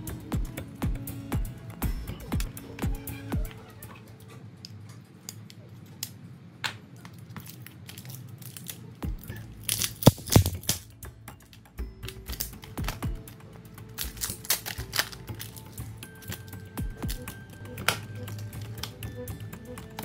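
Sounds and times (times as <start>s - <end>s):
soft background music: 0.0s - 4.6s, 9.0s - 20.0s
plastic clicks and crackles: 4.6s - 19.1s
adhesive tearing: 7.0s - 11.0s, 13.9s - 17.2s.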